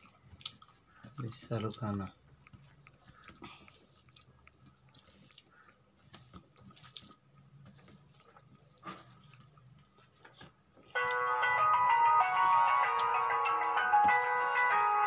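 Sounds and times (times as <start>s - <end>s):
fingers squishing food on plate: 0.0s - 10.5s.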